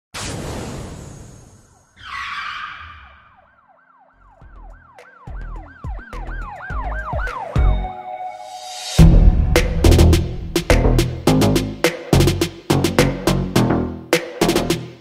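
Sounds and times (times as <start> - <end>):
siren-like wail: 1.7 - 9.0
whoosh: 8.5 - 11.3
deep bass thumps: 9.0 - 13.3.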